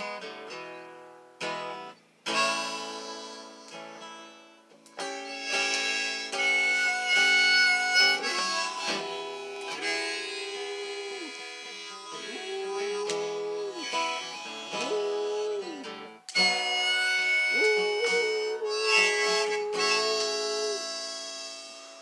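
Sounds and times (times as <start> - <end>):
harmonica chords: 0.0 - 22.0
dog howling: 8.1 - 21.0.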